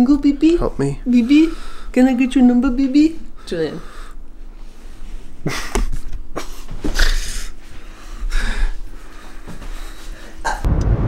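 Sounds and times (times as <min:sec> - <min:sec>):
person huffing and snorting: 0:06.4 - 0:07.6.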